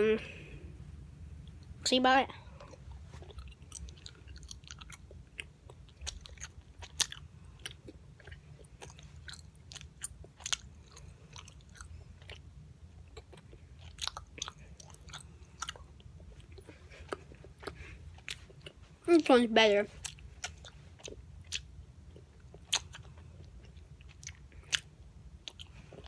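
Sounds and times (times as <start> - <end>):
boy chewing gum: 2.4 - 26.0.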